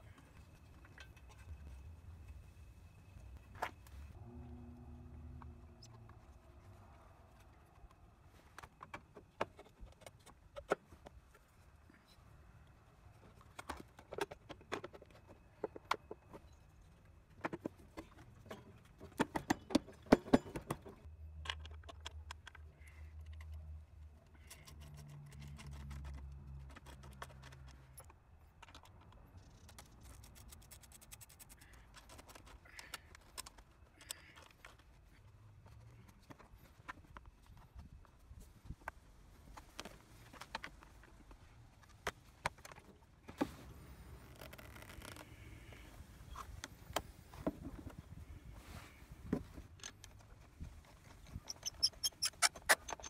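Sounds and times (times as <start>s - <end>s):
low hum: 0.0s - 7.7s.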